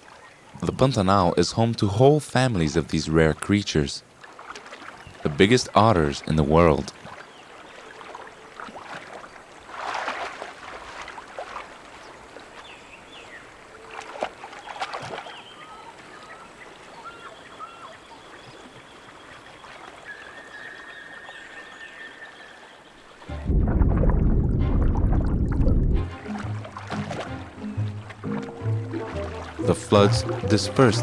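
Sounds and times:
otters splashing in water: 4.2 - 12.8, 13.8 - 16.1, 23.6 - 31.0.

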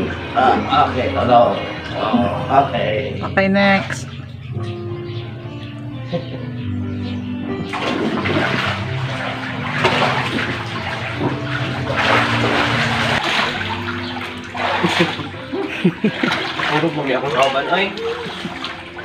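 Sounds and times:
background music with held notes: 0.0 - 19.0
water splashing in paddling pool: 7.6 - 19.0.

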